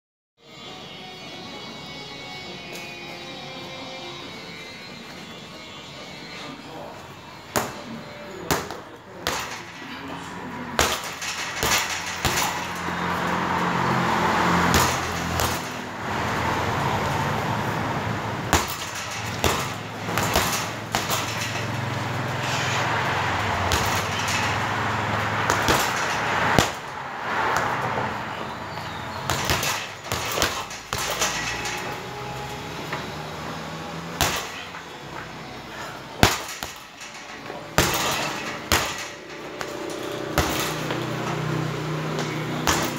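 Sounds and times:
punches thudding on heavy bag: 0:08.5 - 0:09.8, 0:10.8 - 0:13.0, 0:14.6 - 0:15.8, 0:18.5 - 0:21.8, 0:23.7 - 0:24.6, 0:25.4 - 0:26.9, 0:29.2 - 0:31.9, 0:34.1 - 0:34.8, 0:36.2 - 0:37.0, 0:37.7 - 0:41.1, 0:42.5 - 0:42.9.

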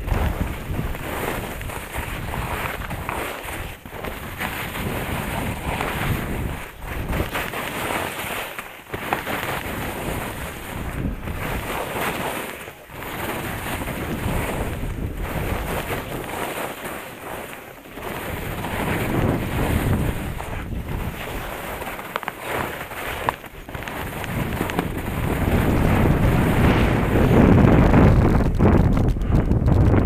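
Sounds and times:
wind buffeting microphone: 0:00.0 - 0:07.9, 0:09.6 - 0:12.1, 0:12.9 - 0:16.4, 0:18.0 - 0:22.0, 0:22.8 - 0:30.0
skis scraping over snow: 0:00.0 - 0:30.0.

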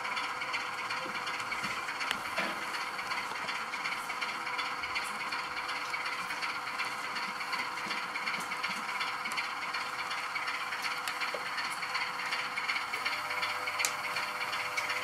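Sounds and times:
model locomotive hum: 0:00.0 - 0:15.0
model train wheels rattling: 0:00.0 - 0:15.0.

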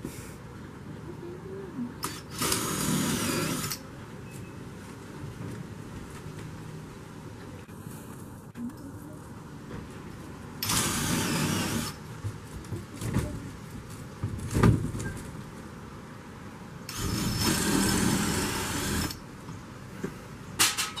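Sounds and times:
electric drill-driver running: 0:02.0 - 0:03.8, 0:10.6 - 0:12.0, 0:16.9 - 0:19.2.

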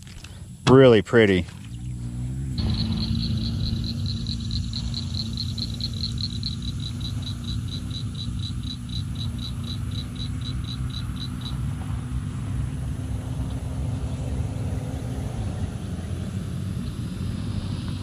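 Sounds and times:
vehicle engine rumbling: 0:00.0 - 0:18.0
rapid high chirps: 0:02.6 - 0:11.7.

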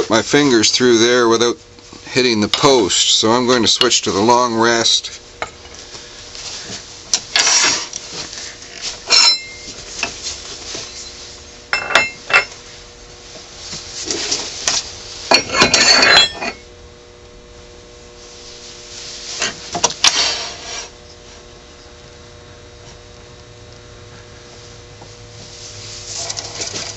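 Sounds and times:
metal clinks and scrapes: 0:08.7 - 0:10.2, 0:11.8 - 0:12.6, 0:15.3 - 0:16.6.

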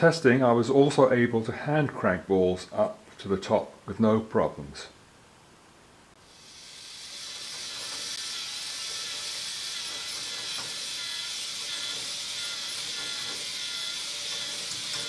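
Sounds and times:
toy motor whirring: 0:06.3 - 0:15.0.

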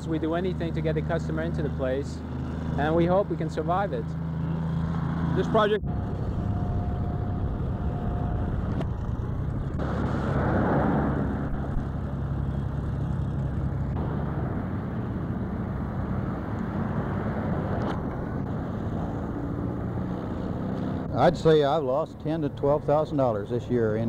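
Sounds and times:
highway traffic rumble: 0:00.0 - 0:24.0
vehicle passing close by: 0:04.0 - 0:21.7.

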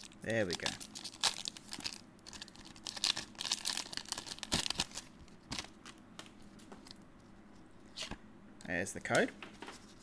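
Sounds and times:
foil wrapper crinkling: 0:00.0 - 0:05.8.

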